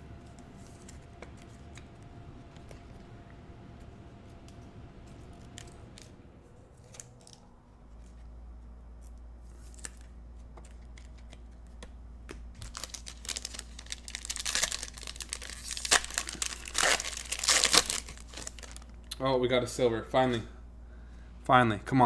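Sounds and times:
low hum: 0.0 - 21.9
foil wrapper crinkling and tearing: 12.6 - 19.0.

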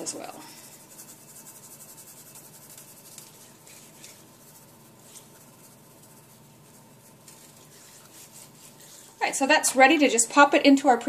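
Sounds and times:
hand rubbing salt into skin: 0.0 - 9.3.

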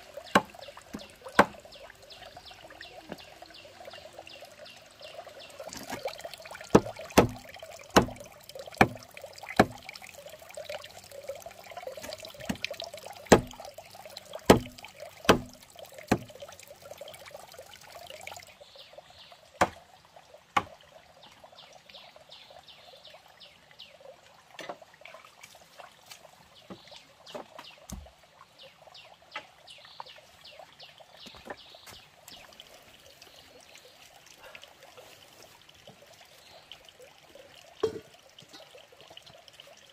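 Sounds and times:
stream trickling: 0.0 - 39.9
knife chopping on wooden block: 13.3 - 13.5, 14.5 - 14.7.

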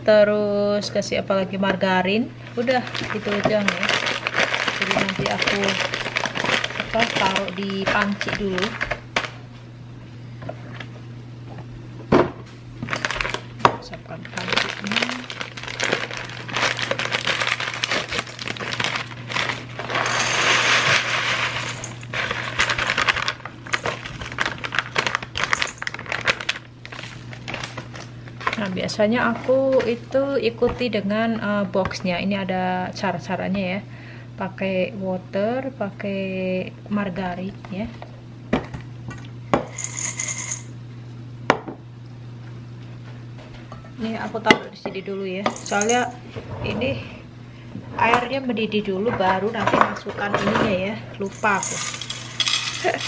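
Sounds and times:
packaging crinkling: 2.6 - 9.4, 12.8 - 13.5, 14.2 - 28.7, 51.2 - 53.0
bread cubes rattling in pot: 2.7 - 9.3, 14.3 - 28.6, 39.7 - 40.7, 45.5 - 46.2, 50.2 - 53.0
bread crumbs pattering on metal: 51.3 - 53.0.

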